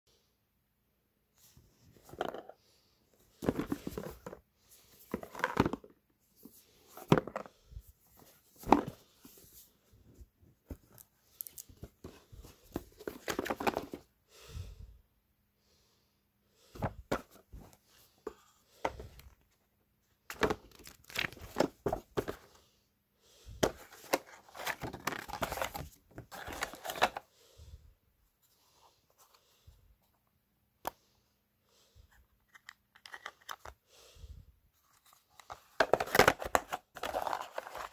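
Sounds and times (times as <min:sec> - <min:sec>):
paper and cardboard handling: 0:23.6 - 0:27.2, 0:34.8 - 0:37.9.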